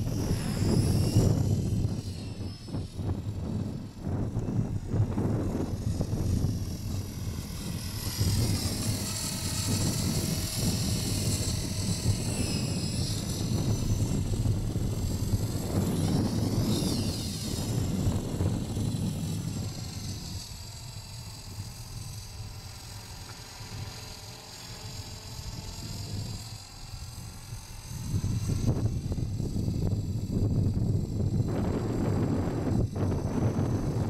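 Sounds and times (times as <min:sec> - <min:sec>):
rc helicopter motor whine: 0:00.0 - 0:34.0
wind rumble on microphone: 0:00.0 - 0:34.0.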